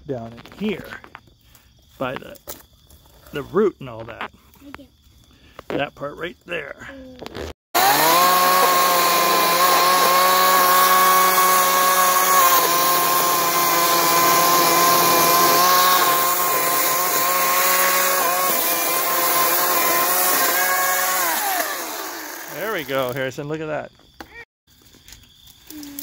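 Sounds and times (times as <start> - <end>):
electric chainsaw cutting branches: 7.8 - 23.3.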